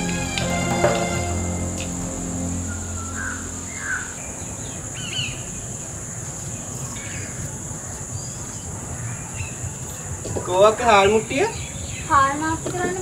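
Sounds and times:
high-pitched insect drone: 0:00.0 - 0:07.4.

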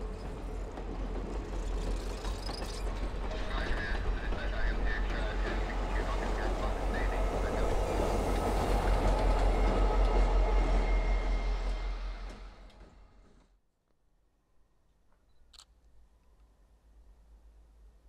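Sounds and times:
diesel locomotive passing: 0:00.0 - 0:13.4.

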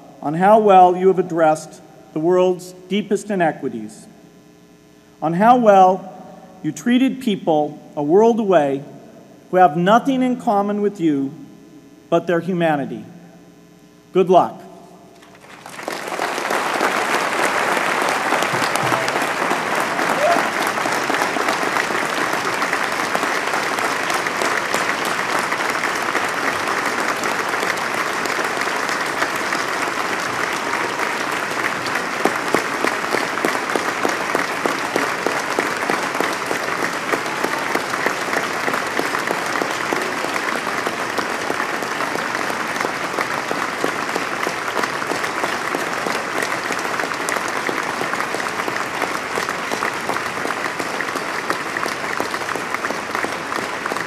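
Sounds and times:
large audience applauding: 0:15.2 - 0:54.0.

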